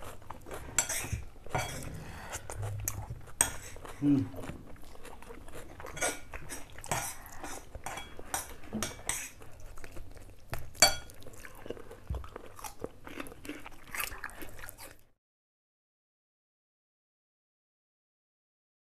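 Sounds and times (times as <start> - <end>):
people chewing and biting: 0.0 - 15.1.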